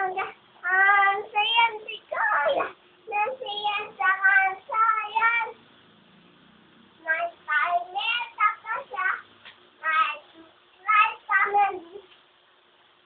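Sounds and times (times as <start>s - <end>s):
child singing: 0.0s - 5.6s, 7.0s - 9.2s, 9.8s - 12.1s.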